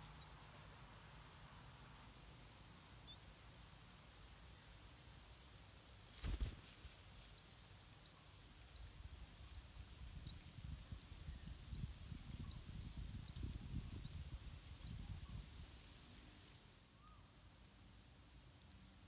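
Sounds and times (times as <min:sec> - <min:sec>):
bird wingbeats: 0:06.1 - 0:07.3
nestling begging chirps: 0:06.2 - 0:15.2
wind rumble on microphone: 0:09.0 - 0:15.8.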